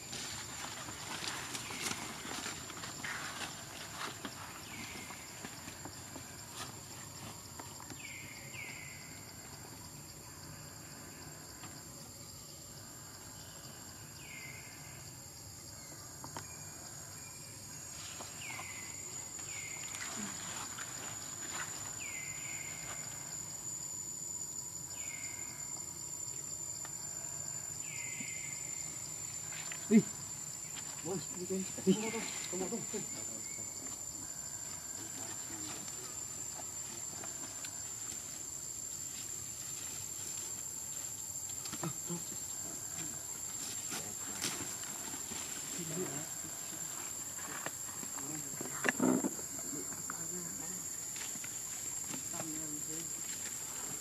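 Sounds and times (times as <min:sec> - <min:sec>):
high-pitched insect drone: 0:00.0 - 0:54.0.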